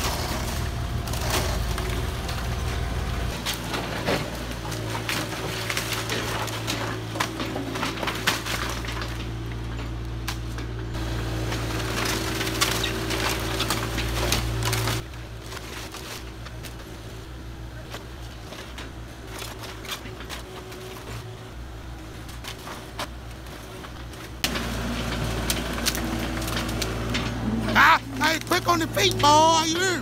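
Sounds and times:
timber cracking and splintering: 0.0 - 9.6, 10.2 - 17.1, 17.8 - 21.2, 22.2 - 30.0
excavator diesel engine running: 0.0 - 30.0.

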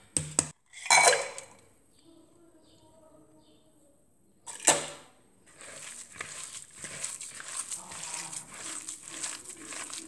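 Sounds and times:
hand kneading minced meat: 5.4 - 10.0.

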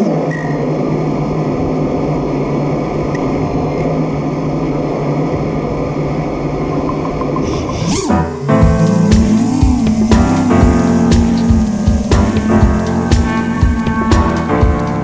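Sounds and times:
drone motors whirring: 6.0 - 15.0.

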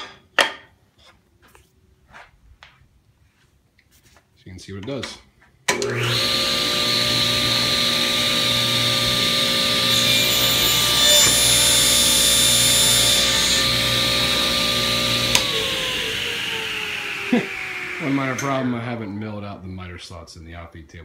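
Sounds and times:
saw blade cutting wood: 5.7 - 19.1
table saw motor hum and whine: 5.8 - 19.0.

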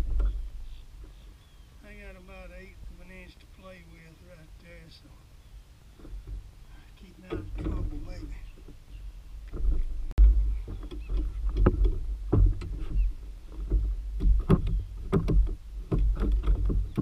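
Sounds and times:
steady low rumble: 0.0 - 17.0
knocks on plastic kayak hull: 13.6 - 17.0.

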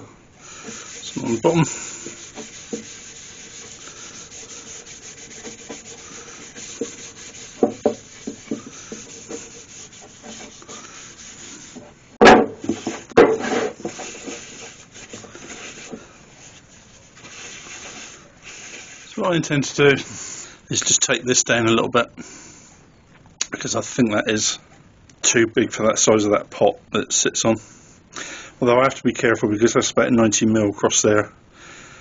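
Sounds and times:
cloth rubbing wood: 0.0 - 20.2
wood tapping on bench: 6.6 - 9.5, 12.2 - 13.5
sharp knocks: 7.6 - 9.1, 12.2 - 13.5.

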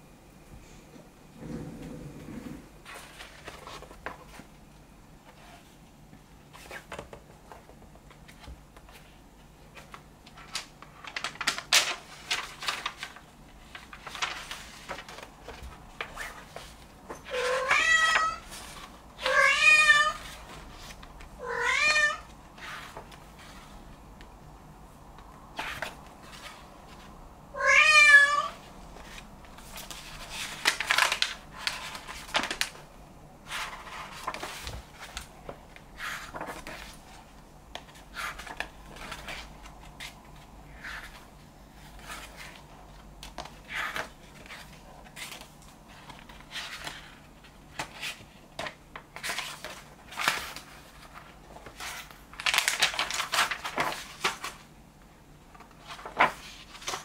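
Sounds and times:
book pages turning: 2.4 - 4.5, 6.5 - 19.4, 20.1 - 21.3, 22.5 - 23.9, 25.5 - 27.1, 28.9 - 32.8, 33.5 - 54.6, 55.5 - 57.0
cat meowing: 17.4 - 18.4, 19.3 - 20.2, 21.4 - 22.2, 27.6 - 28.6.

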